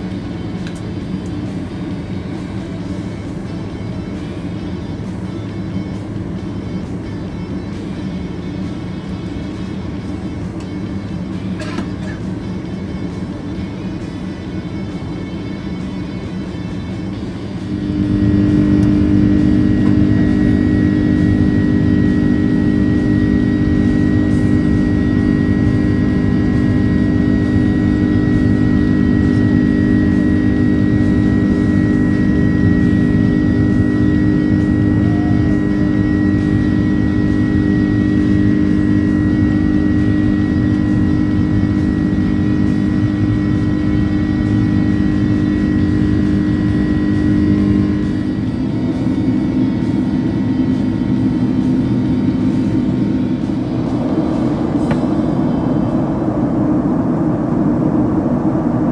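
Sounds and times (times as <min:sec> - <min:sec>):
high engine whine: 0:00.0 - 0:58.9
jet engines drone in cabin: 0:00.0 - 0:58.9.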